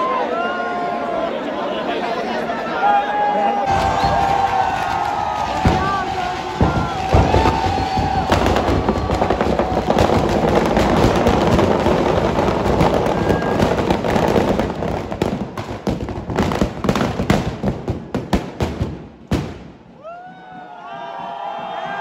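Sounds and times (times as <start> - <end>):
firecrackers crackling: 3.7 - 20.1.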